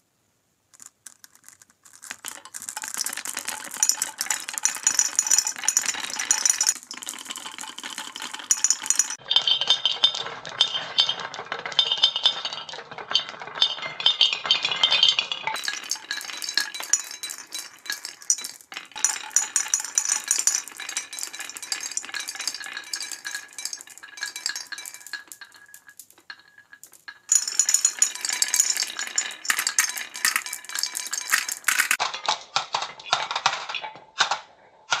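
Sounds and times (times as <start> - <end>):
balls dropping into plastic truck: 0.7 - 9.2, 15.6 - 35.0
balls clattering down marble run: 0.8 - 34.4.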